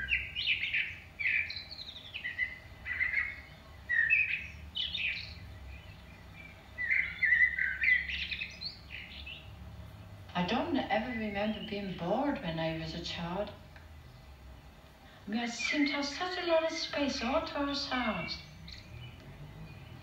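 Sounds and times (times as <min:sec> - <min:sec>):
songbird warbling: 0:00.0 - 0:09.6, 0:10.4 - 0:20.0
faint steady hum: 0:00.0 - 0:20.0.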